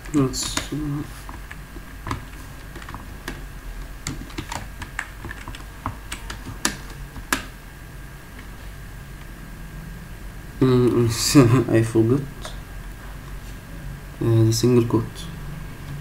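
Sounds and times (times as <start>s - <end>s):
typing on computer keyboard: 0.0s - 7.5s.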